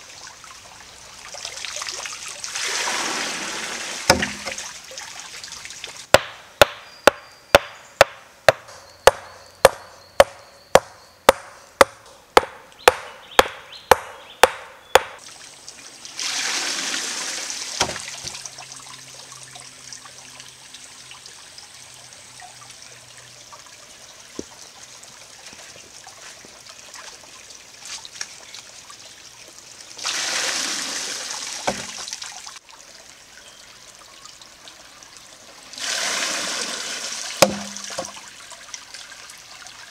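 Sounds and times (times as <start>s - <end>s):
water rushing and splashing: 0.0s - 6.1s, 15.0s - 20.9s, 29.8s - 32.9s, 34.4s - 39.9s
trickling stream: 0.0s - 39.9s
wooden hammer knocking stone: 4.1s - 4.6s, 6.1s - 15.2s, 37.4s - 38.1s.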